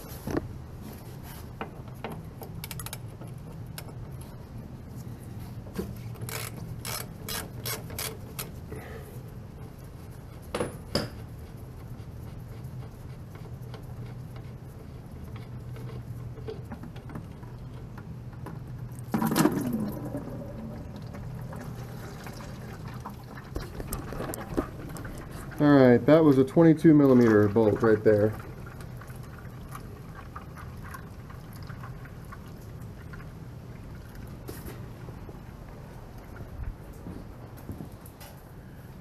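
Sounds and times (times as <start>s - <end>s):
oil pouring into plastic bucket: 18.9s - 25.7s.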